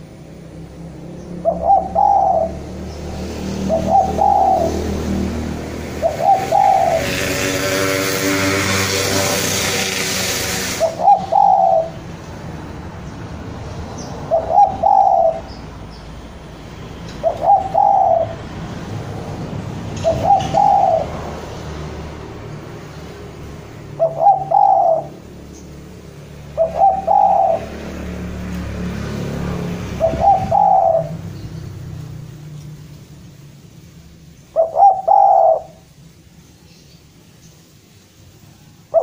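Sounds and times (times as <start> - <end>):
dove cooing: 1.4 - 2.7, 3.4 - 9.7, 10.6 - 12.1, 14.2 - 15.6, 17.2 - 18.4, 19.9 - 21.4, 23.8 - 25.3, 26.4 - 27.9, 29.8 - 31.3, 34.5 - 35.9.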